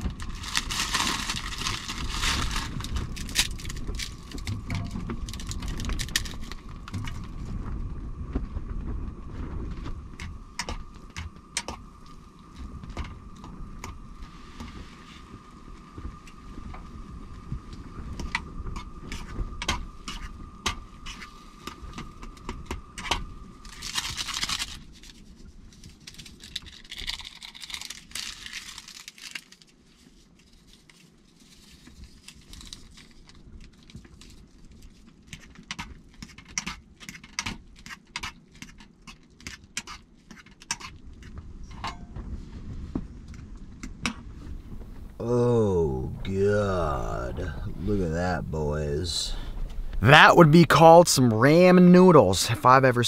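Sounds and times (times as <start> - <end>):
plastic packet crinkling: 0.0 - 4.5, 23.8 - 25.1, 26.1 - 29.7
dry noodles crumbling into pot: 0.0 - 7.2, 23.7 - 34.6
seasoning packet tearing: 26.2 - 29.6.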